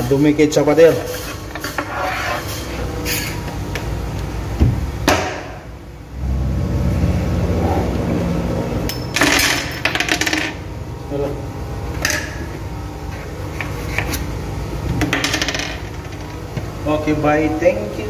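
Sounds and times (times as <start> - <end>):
low steady rumble: 4.0 - 13.1.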